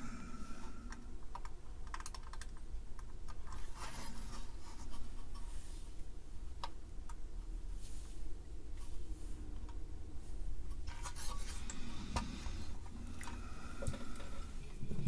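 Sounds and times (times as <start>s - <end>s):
small clicks: 0.9s - 3.6s.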